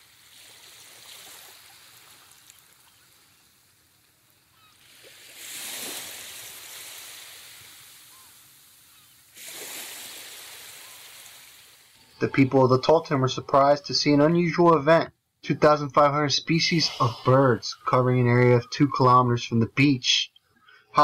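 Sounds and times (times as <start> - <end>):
faint bird calls: 4.4 - 4.8, 8.0 - 9.3
surf breaking on beach: 4.8 - 12.1.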